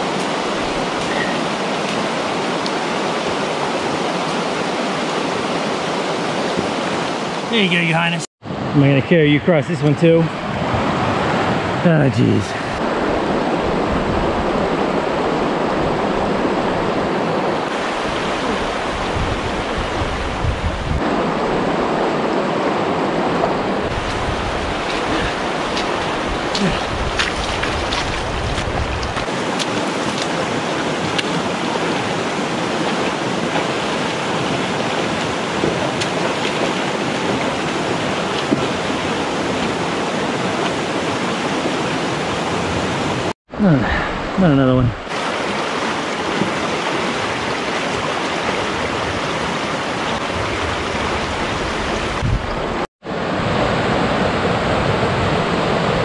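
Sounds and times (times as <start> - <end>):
stream rushing over stones: 0.0 - 56.0
boots splashing through water: 23.9 - 41.8.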